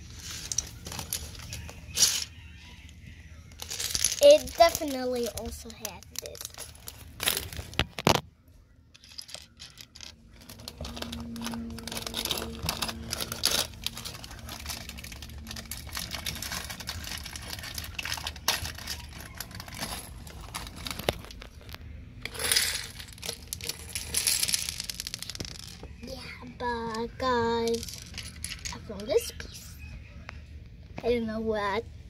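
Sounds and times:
plastic bag crinkling: 3.6s - 8.2s, 9.0s - 25.8s
plastic pieces clicking together: 3.6s - 8.2s, 8.9s - 25.9s, 27.7s - 28.8s.

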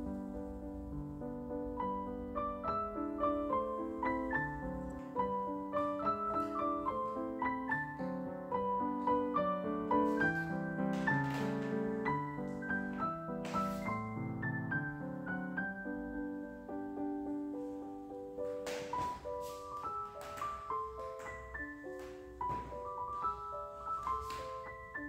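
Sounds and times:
solo piano music: 0.0s - 25.0s.

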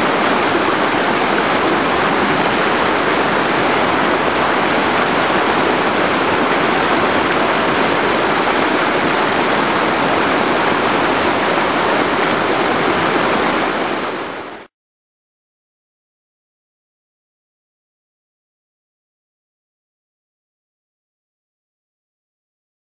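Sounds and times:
whitewater rapids rushing: 0.0s - 14.7s.

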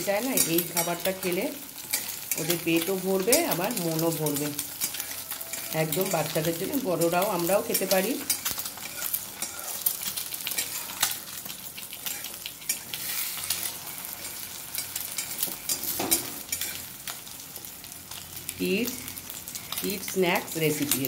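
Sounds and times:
eggs sizzling in oil: 0.0s - 21.0s
spatula scraping metal pan: 4.6s - 6.3s, 7.7s - 11.2s, 12.0s - 16.8s.

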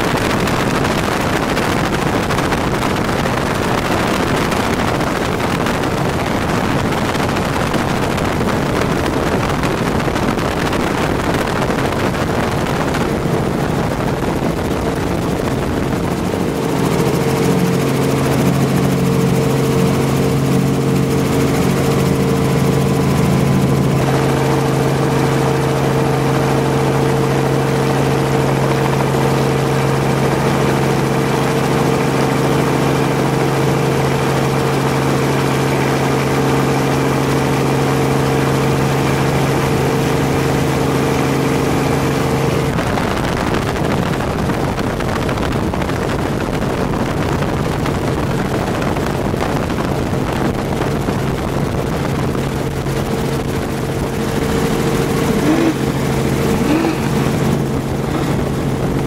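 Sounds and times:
engine drone: 0.0s - 59.0s.

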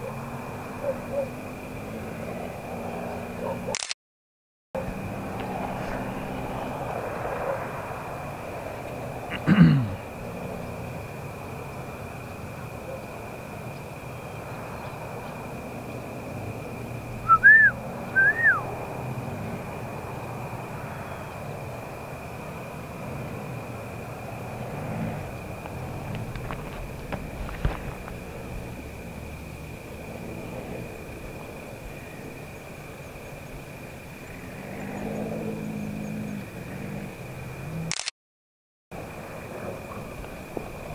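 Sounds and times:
distant hum: 4.8s - 37.9s
whistled animal calls: 17.2s - 18.7s.

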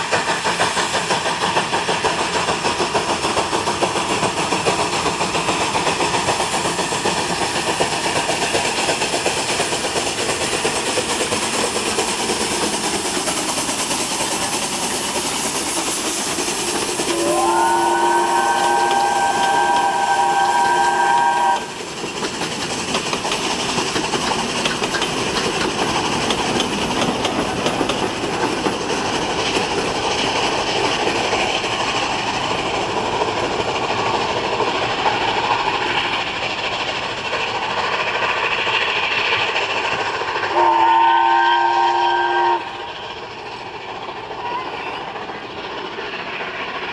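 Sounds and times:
steam hissing: 0.0s - 46.9s
steam locomotive passing: 0.0s - 46.9s
steam whistle: 17.0s - 21.8s, 40.5s - 42.9s.

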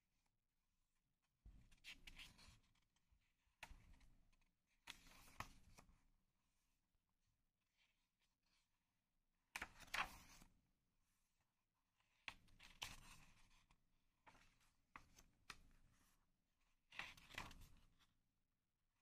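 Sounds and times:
paper pages rustling: 9.6s - 10.4s.

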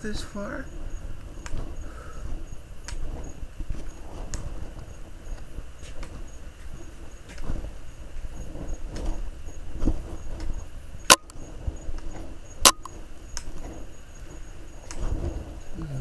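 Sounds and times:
soft footsteps: 0.7s - 15.7s
sharp clicks: 1.4s - 1.7s, 2.8s - 3.0s, 10.4s - 11.4s, 12.0s - 13.6s.

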